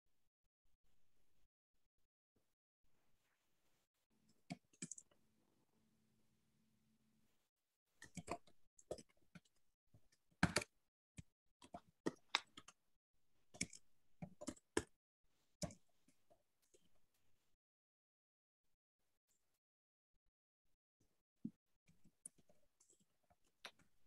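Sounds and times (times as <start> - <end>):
computer keyboard typing: 4.5 - 5.0.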